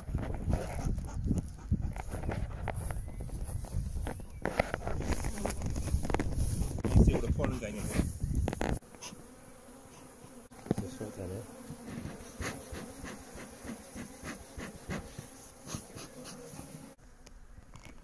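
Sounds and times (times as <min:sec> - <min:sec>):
bees humming at hive: 0:08.2 - 0:18.0
single bees buzzing past: 0:08.6 - 0:17.7.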